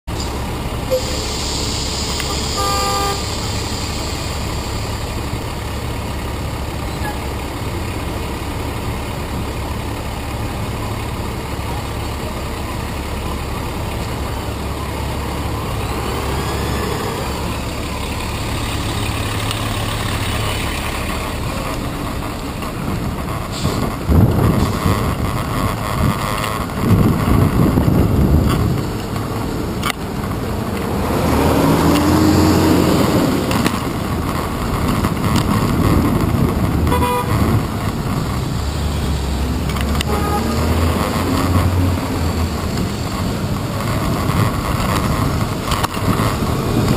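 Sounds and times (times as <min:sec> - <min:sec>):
traffic engines running: 0:00.0 - 0:46.9
car horns honking: 0:00.9 - 0:03.5, 0:36.8 - 0:37.7, 0:40.0 - 0:41.8.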